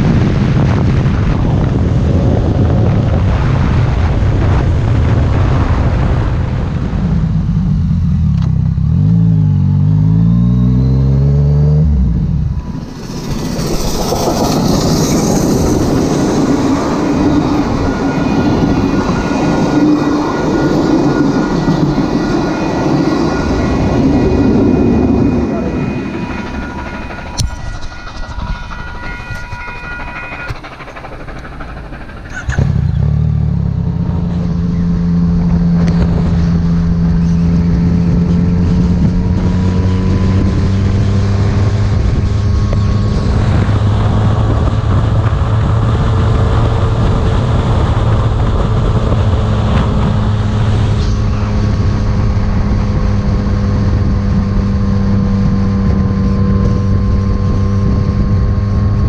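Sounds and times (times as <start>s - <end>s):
motorcycle engine accelerating: 0.0s - 59.0s
level-crossing warning bells: 12.0s - 32.5s.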